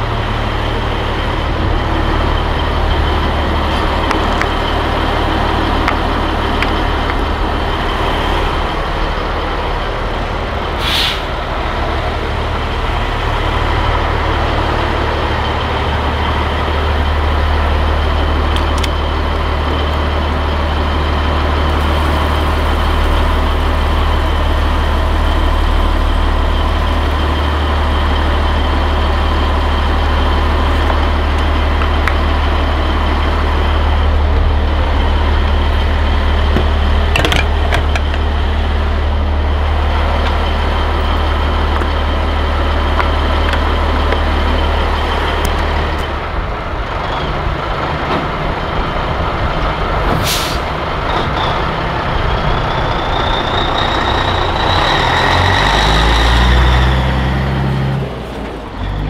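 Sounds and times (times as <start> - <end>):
diesel truck engine idling: 0.0 - 59.0
sharp air hiss: 10.8 - 11.4, 50.2 - 50.7.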